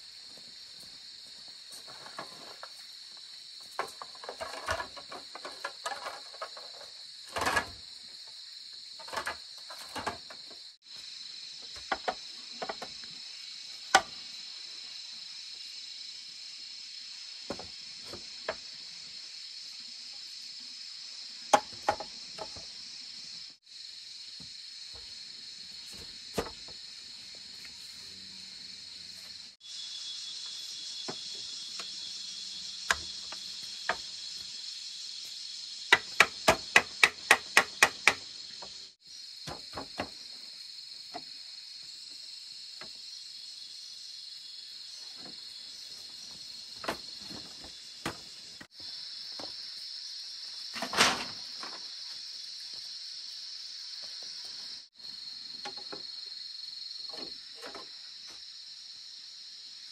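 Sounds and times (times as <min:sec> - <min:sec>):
insects chirping: 0:00.0 - 0:59.9
bamboo knocking: 0:21.5 - 0:22.6, 0:35.9 - 0:38.2.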